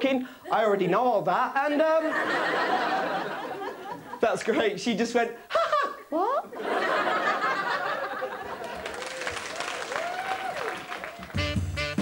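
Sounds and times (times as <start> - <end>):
people cheering: 7.8 - 11.5
audience applauding: 8.3 - 11.7
swing band music with brass: 11.2 - 12.0.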